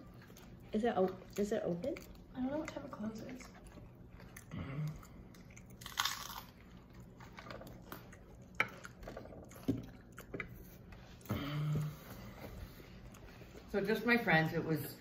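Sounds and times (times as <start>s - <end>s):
crunchy chewing: 0.0s - 11.2s.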